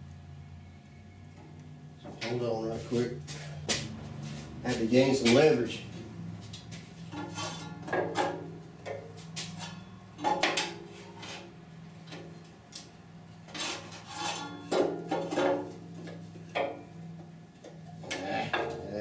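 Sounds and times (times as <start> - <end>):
metallic clanks and scrapes: 7.0 - 12.2, 13.4 - 16.9.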